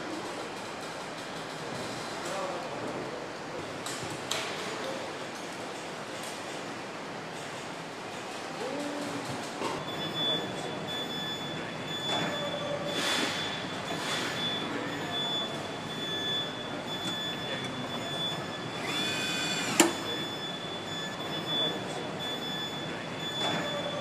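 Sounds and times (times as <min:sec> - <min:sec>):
machinery high whine: 0:09.8 - 0:24.0.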